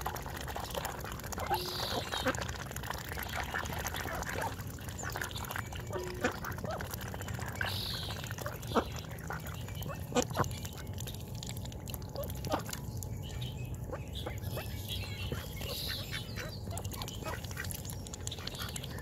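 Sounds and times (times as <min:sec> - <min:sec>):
ducks slurping and splashing water: 0:00.0 - 0:19.0.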